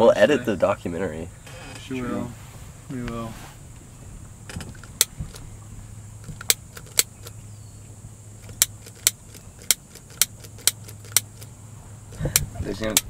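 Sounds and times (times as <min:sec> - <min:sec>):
low hum: 0:00.6 - 0:13.0
cigarette lighter clicking: 0:08.4 - 0:11.5.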